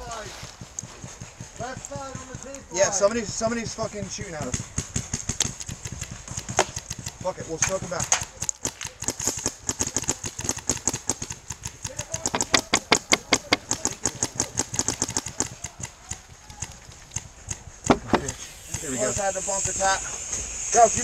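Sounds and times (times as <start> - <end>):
paintball markers firing: 0.2 - 19.5.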